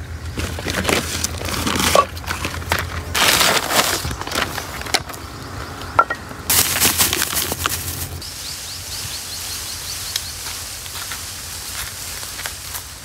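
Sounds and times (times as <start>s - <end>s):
plastic sack rustling: 0.4s - 5.2s, 6.5s - 8.2s.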